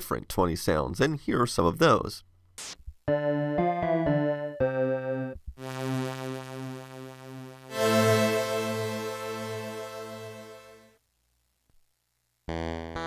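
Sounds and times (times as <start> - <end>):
electric piano chords: 3.1 - 10.9
keyboard strings chord: 3.1 - 10.9.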